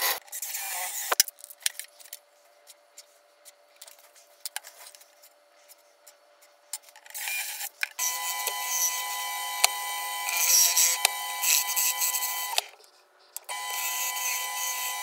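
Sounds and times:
cordless drill spinning down: 8.0 - 12.7, 13.5 - 15.0.

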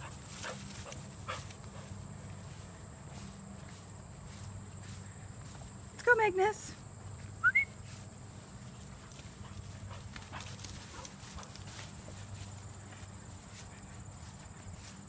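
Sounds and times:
steady low hum: 0.0 - 6.1
footsteps in grass: 0.0 - 15.0.

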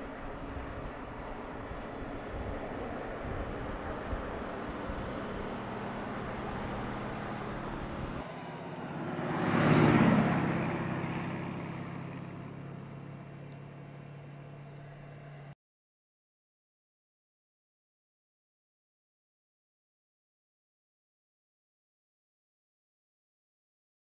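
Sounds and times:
wind noise: 0.0 - 8.2
car engine: 0.0 - 15.6
car passing at speed: 0.8 - 13.3.

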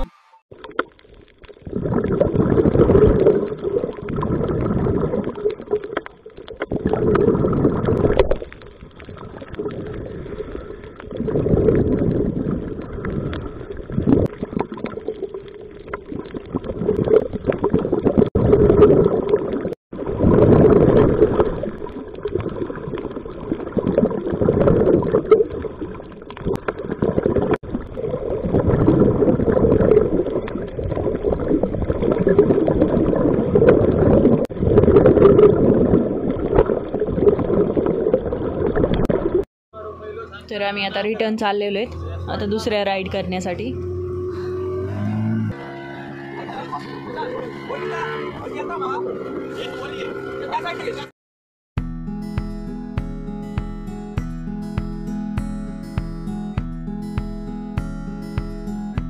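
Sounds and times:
underwater breath bubbles gurgling: 0.6 - 39.4.

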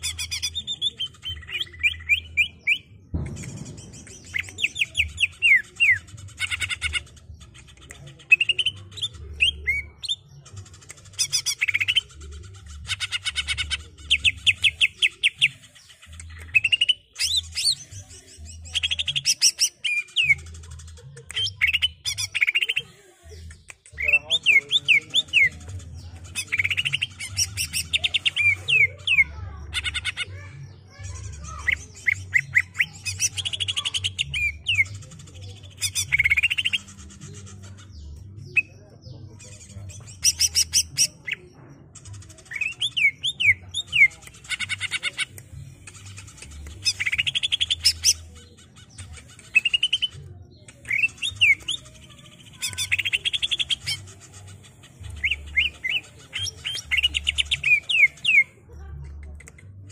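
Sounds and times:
bird trilling and whistling: 0.0 - 7.0, 42.5 - 50.2, 50.8 - 58.5.

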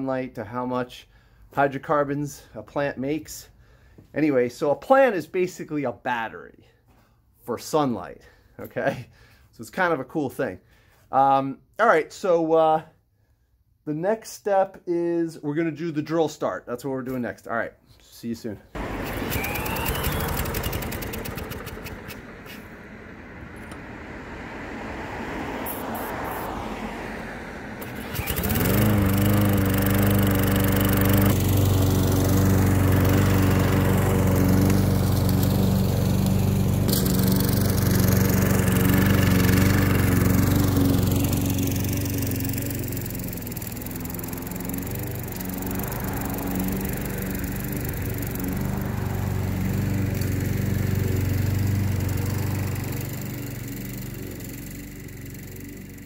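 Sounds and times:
cordless drill cranking mower engine: 18.8 - 24.0, 25.4 - 26.9, 27.6 - 56.0
lawn mower engine running: 18.8 - 56.0.

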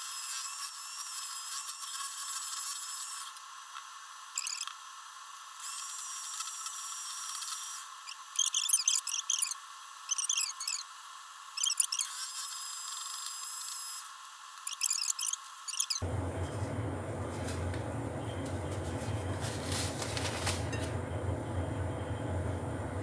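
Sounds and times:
high squeaky chirps: 4.4 - 4.7, 8.1 - 10.8, 11.6 - 12.1, 14.6 - 16.0.

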